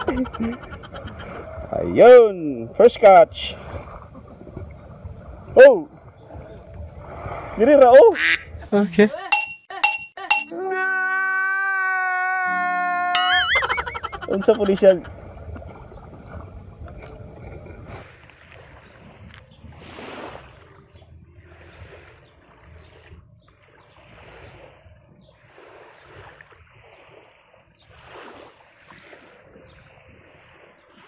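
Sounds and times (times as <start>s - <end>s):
small waves lapping on shore: 1.2s - 8.0s, 14.4s - 31.0s
wind on microphone: 14.5s - 31.0s.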